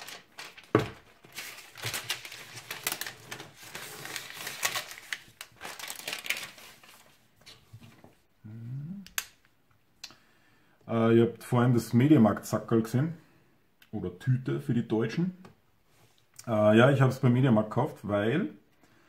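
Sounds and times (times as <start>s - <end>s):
plastic film crackling as torn: 0.0s - 7.0s.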